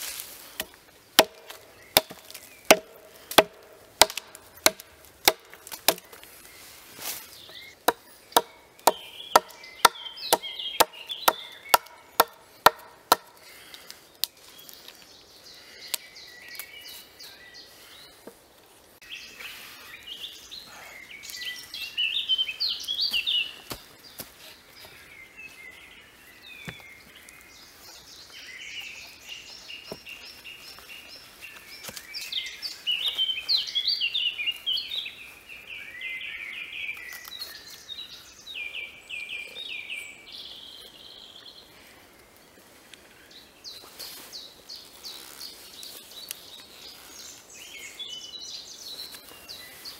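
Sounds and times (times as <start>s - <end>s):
birds singing: 0.4s - 49.9s
axe chopping log: 0.6s - 6.2s, 7.8s - 13.3s.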